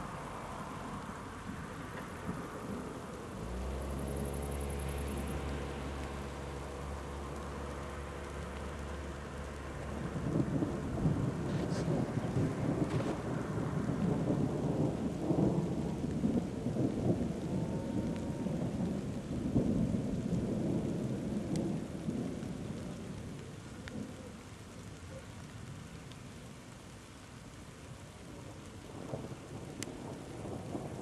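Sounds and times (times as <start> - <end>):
thunder rumbling: 0.0 - 27.2, 27.9 - 31.0.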